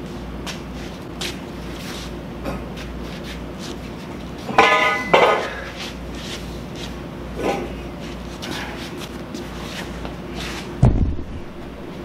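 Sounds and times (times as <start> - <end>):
steel pipe clanking on concrete: 4.5 - 5.7.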